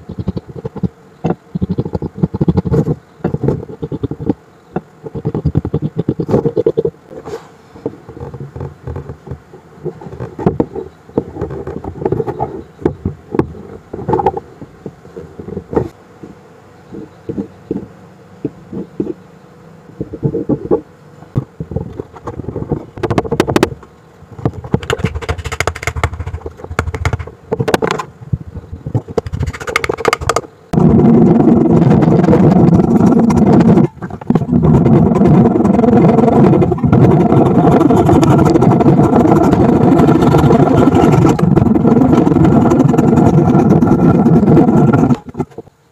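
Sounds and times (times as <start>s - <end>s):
wood pieces knocking and scraping: 24.4s - 28.1s, 29.0s - 30.4s.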